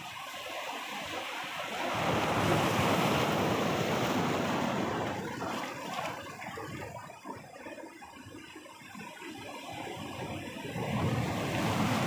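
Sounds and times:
waves breaking on rocks: 1.7s - 6.4s.

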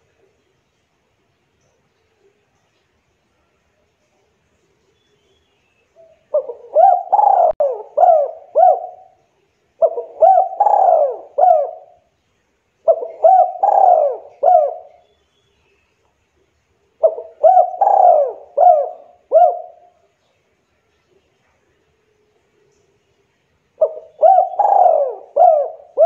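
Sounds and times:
dove cooing: 6.0s - 9.2s, 9.8s - 12.1s, 12.8s - 15.0s, 17.0s - 20.0s, 23.8s - 26.0s.

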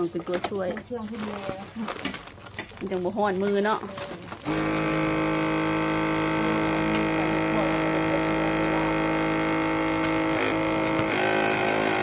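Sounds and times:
vacuum sealer pump humming: 4.1s - 12.0s.

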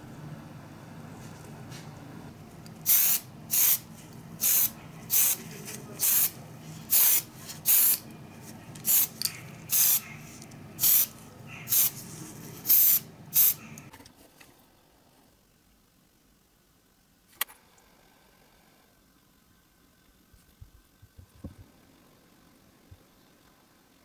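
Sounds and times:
spray paint hissing: 2.8s - 5.4s, 6.0s - 8.0s, 8.8s - 13.8s.

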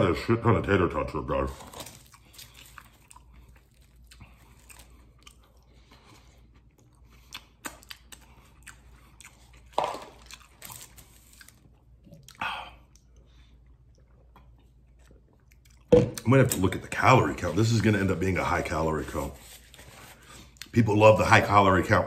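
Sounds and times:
crunchy food chewing: 1.5s - 15.9s.

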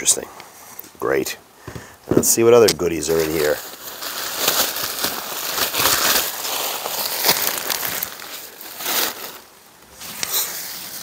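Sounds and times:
bubble wrap crinkling: 2.8s - 11.0s.

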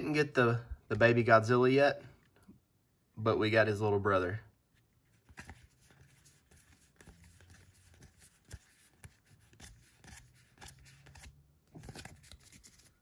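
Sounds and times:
cards rustling and clicking: 4.8s - 13.0s.

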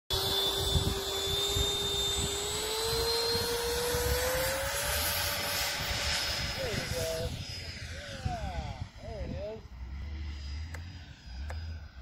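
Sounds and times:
electric ducted fan whining: 0.1s - 12.0s
low irregular rumble: 5.8s - 12.0s.

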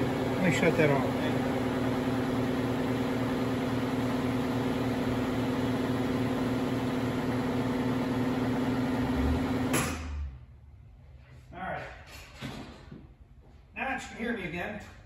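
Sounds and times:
electric shop machine humming: 0.0s - 10.5s
speech: 0.4s - 1.4s, 11.5s - 12.0s, 13.8s - 15.0s.

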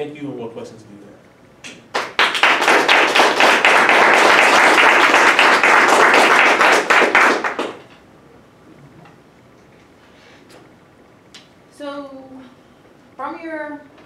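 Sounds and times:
audience applauding: 1.9s - 7.9s.

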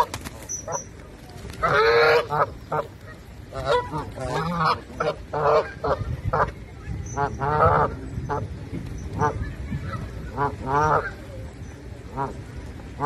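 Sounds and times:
geese honking: 1.6s - 6.5s, 7.2s - 8.5s, 10.3s - 11.2s.

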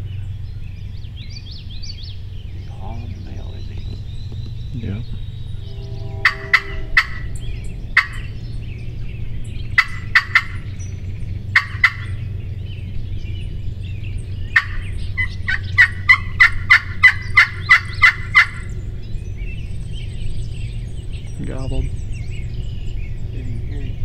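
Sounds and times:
turkey gobbling: 6.2s - 8.4s, 9.6s - 10.8s, 11.5s - 12.3s, 14.5s - 18.8s.

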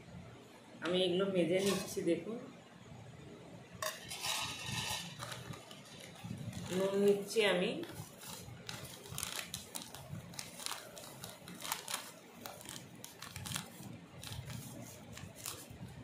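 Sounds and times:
plastic packet crinkling: 3.9s - 16.0s.

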